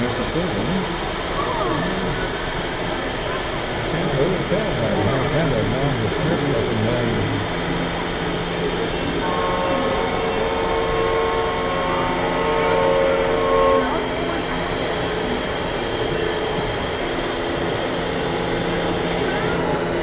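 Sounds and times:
murmur of hall noise and voices: 0.0s - 20.0s
air horn chord: 9.2s - 14.7s.

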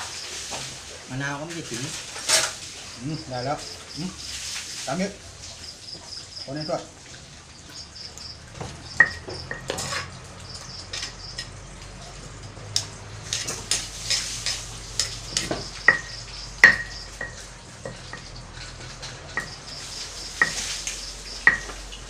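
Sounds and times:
metal utensils clinking on tray: 1.8s - 2.6s, 9.0s - 10.2s, 10.8s - 11.6s, 12.3s - 21.8s.

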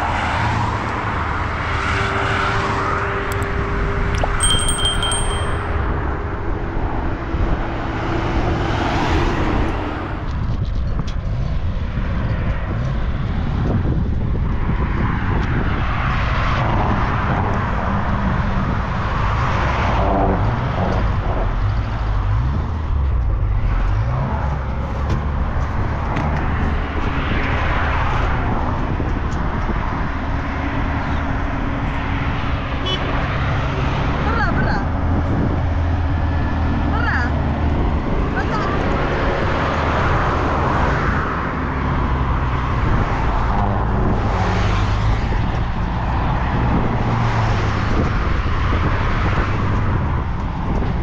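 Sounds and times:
traffic engine rumble: 0.0s - 51.0s
vehicles passing: 0.0s - 51.0s.

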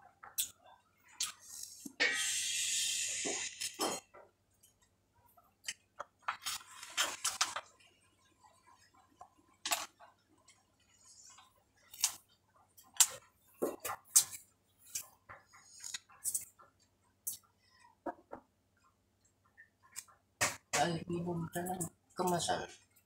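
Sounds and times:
plastic cups rustling crackle: 5.4s - 16.7s.

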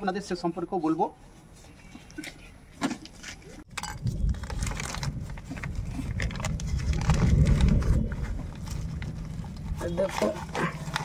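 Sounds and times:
heavy low rumble: 3.8s - 10.0s
plastic bag crinkling: 4.2s - 11.0s.

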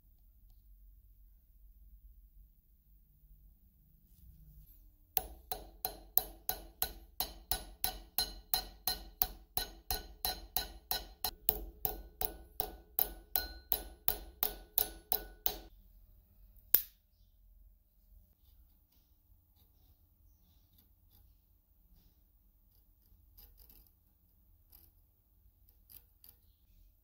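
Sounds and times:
hammer striking metal: 5.2s - 15.7s.

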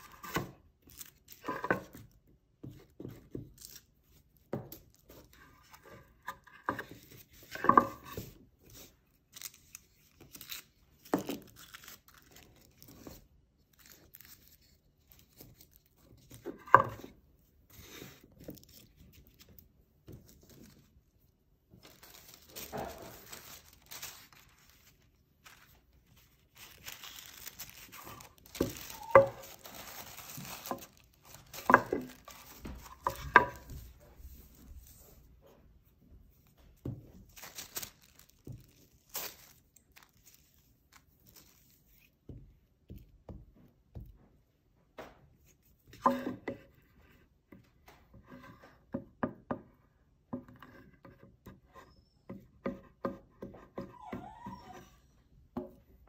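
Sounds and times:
tissue paper rustling: 20.2s - 35.3s, 37.1s - 42.2s.

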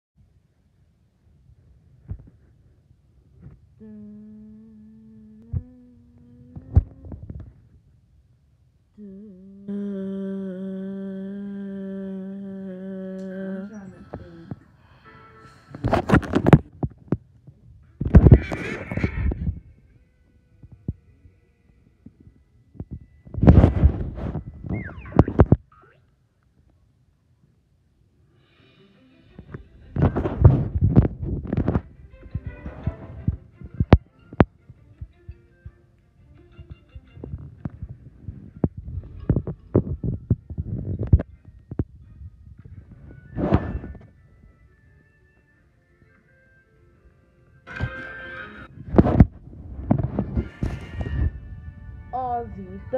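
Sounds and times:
faint music: 0.2s - 52.9s
person humming: 3.8s - 7.4s, 9.0s - 16.6s.

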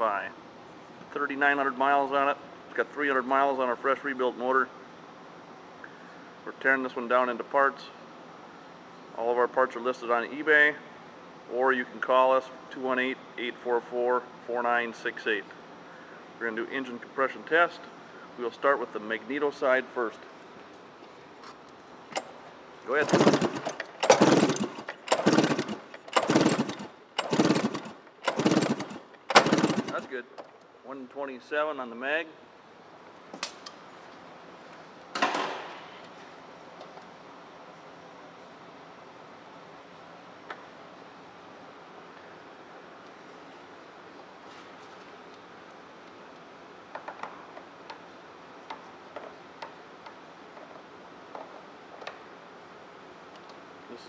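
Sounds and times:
steady low hiss: 0.0s - 54.0s
recoil starter cranking engine: 22.9s - 30.2s.

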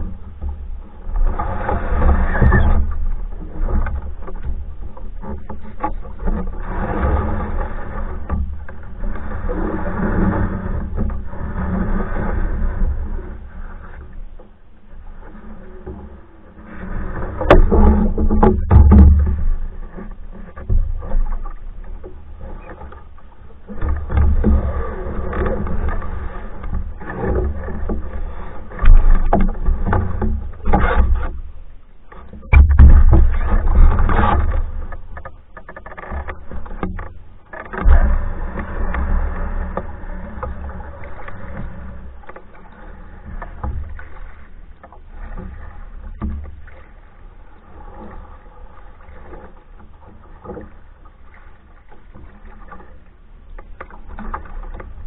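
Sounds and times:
paddle stroke water rushing: 0.0s - 55.0s
small splashes and knocks: 17.1s - 55.0s
sharp knocks: 32.5s - 33.9s.

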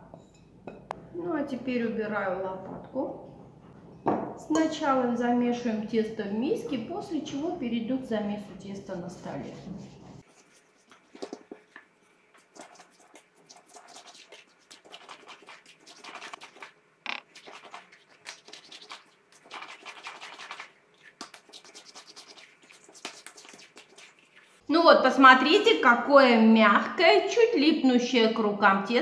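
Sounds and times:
hands kneading dough: 9.0s - 24.6s.

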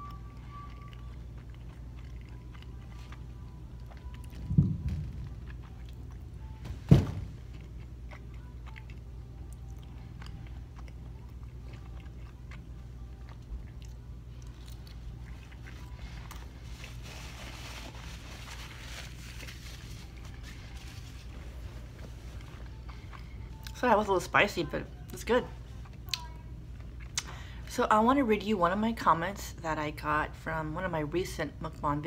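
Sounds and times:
person chewing food: 0.0s - 6.6s, 7.4s - 17.4s, 18.9s - 23.8s, 25.7s - 27.4s
steady low hum: 0.0s - 32.0s
dull thump: 4.4s - 5.3s, 6.6s - 7.4s.

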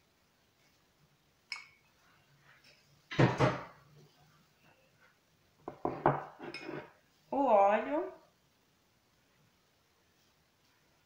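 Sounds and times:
cups and utensils knocking on wood: 5.7s - 6.7s.

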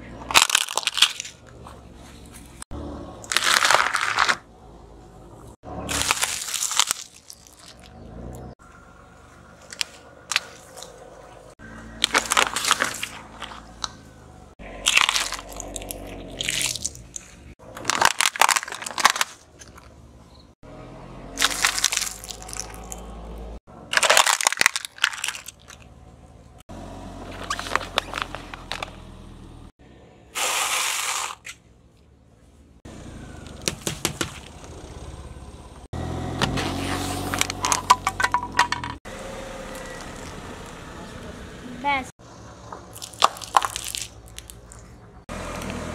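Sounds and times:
tyre crushing plastic objects: 0.2s - 1.5s, 3.2s - 4.4s, 5.9s - 7.9s, 12.0s - 14.0s, 14.8s - 19.9s, 23.9s - 25.9s, 33.5s - 34.6s, 36.4s - 39.0s, 42.9s - 44.8s.

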